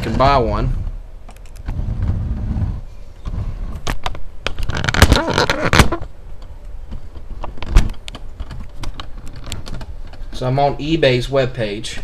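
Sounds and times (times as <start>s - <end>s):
scraping creaking on desk: 0.0s - 4.0s, 4.6s - 6.0s.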